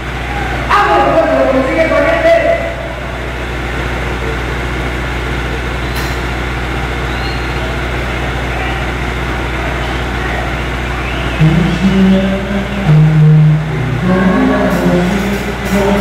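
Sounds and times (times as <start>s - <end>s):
crowd noise: 0.0s - 16.0s
steady low hum: 0.0s - 16.0s
brief click: 5.9s - 6.3s.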